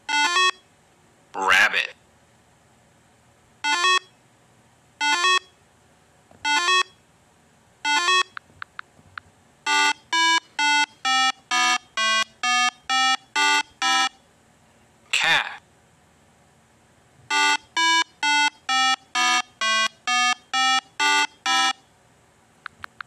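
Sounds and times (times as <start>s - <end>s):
electronic beeping tones: 6.4s - 7.0s, 7.9s - 8.4s, 9.7s - 14.2s, 17.3s - 21.8s.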